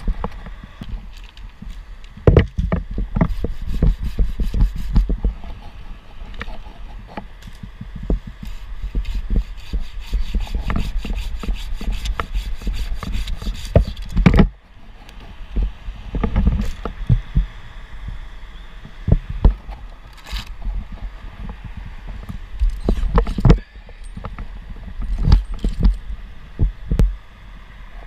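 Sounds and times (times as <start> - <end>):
knocks and rustles of wood: 0.0 - 17.5, 18.9 - 27.2
hand saw cutting a branch: 3.1 - 7.3, 8.2 - 15.3.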